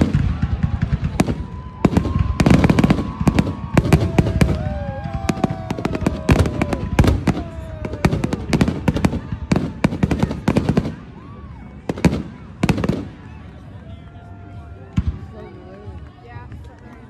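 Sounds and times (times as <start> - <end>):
fireworks bursting and crackling: 0.0 - 13.5.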